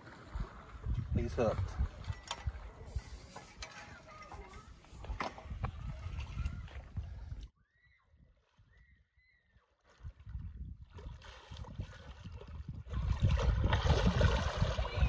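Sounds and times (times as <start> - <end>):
wind rumbling on microphone: 0.2 - 7.5, 9.9 - 15.0
faint whistles: 7.6 - 9.5
fish thrashing and splashing: 10.9 - 15.0.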